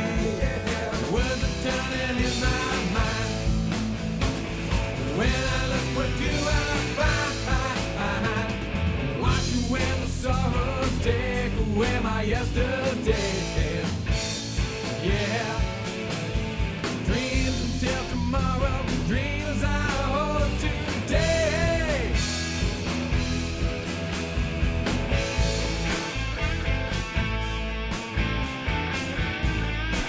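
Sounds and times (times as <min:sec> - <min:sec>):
person singing: 0:00.0 - 0:03.5, 0:05.1 - 0:14.0, 0:15.0 - 0:15.9, 0:17.0 - 0:22.3
rock music: 0:00.0 - 0:30.0
steady drum beat: 0:00.0 - 0:30.0.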